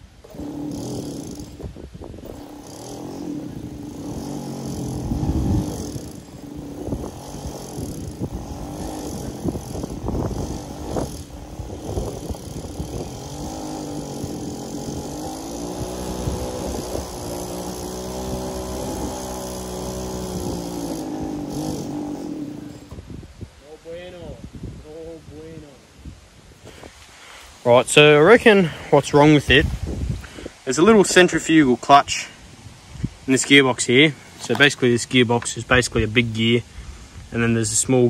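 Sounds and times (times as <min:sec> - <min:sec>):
small engine revving: 0:00.0 - 0:23.0.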